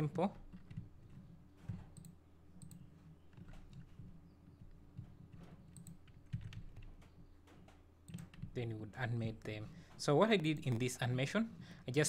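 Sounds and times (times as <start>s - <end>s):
computer keyboard clicking: 0.5s - 8.6s.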